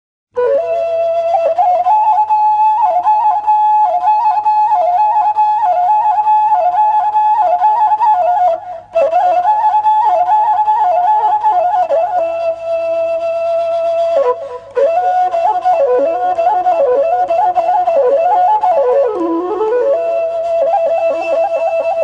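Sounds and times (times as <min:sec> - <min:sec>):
bamboo flute melody: 0:00.3 - 0:22.0.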